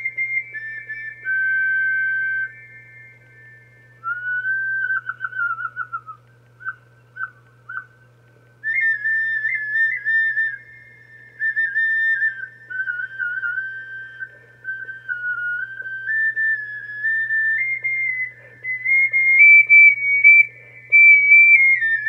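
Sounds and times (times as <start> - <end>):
clay flute high whistle-like notes: 0.0 - 8.0, 8.7 - 22.0.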